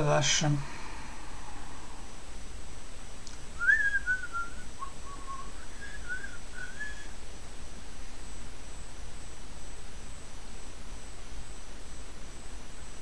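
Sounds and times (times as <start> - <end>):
man whistling a tune: 3.6 - 7.1.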